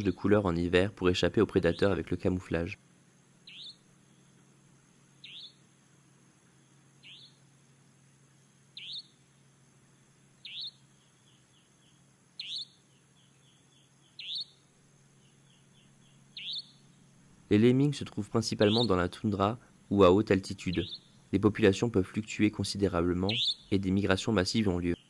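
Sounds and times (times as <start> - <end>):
bird chirping: 0.0 - 2.8, 3.4 - 5.8, 6.5 - 7.6, 8.7 - 9.5, 10.3 - 25.0
low steady hum: 0.0 - 25.0
runs of short bird notes: 18.6 - 19.1, 20.6 - 21.4, 23.2 - 23.8.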